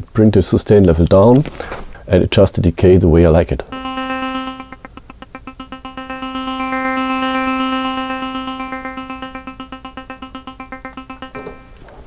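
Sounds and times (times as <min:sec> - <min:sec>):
synthesizer arpeggiated pulse: 0:03.7 - 0:11.8.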